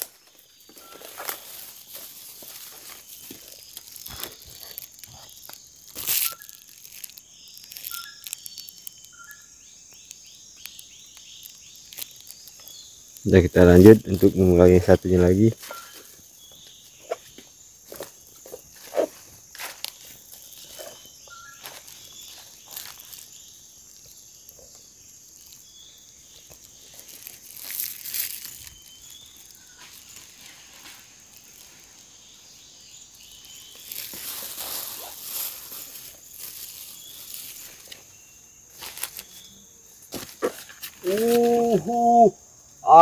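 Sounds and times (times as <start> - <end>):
footsteps rustling through leaves: 0.0 - 8.3, 17.9 - 23.4, 26.5 - 32.0, 33.5 - 39.5
insect drone: 0.0 - 43.0
bird chirps: 2.6 - 13.1, 15.5 - 17.4, 20.0 - 27.1.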